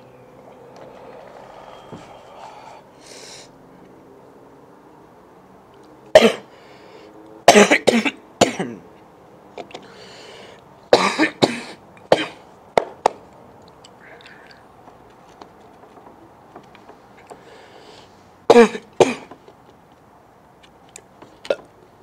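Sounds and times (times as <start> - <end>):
man coughing: 6.2 - 6.4, 7.5 - 8.8, 11.0 - 12.4, 18.5 - 19.3.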